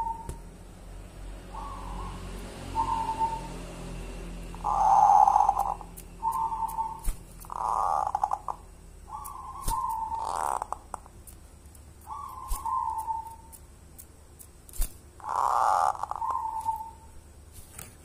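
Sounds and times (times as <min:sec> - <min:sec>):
dove cooing: 0:00.0 - 0:00.4, 0:01.5 - 0:03.5, 0:04.6 - 0:10.8, 0:12.1 - 0:13.3, 0:15.2 - 0:17.0
sharp clicks: 0:05.5 - 0:07.6.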